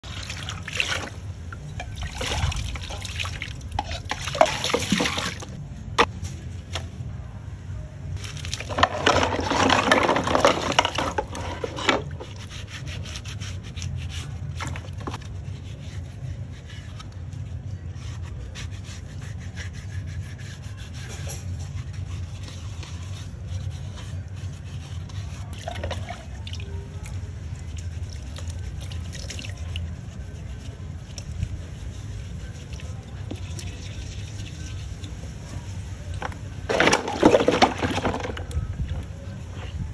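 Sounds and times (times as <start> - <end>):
water pouring and splashing: 0.0 - 5.6, 25.5 - 30.2, 36.2 - 38.6
wet rubbing of scrubbing: 0.0 - 5.6, 8.2 - 39.9.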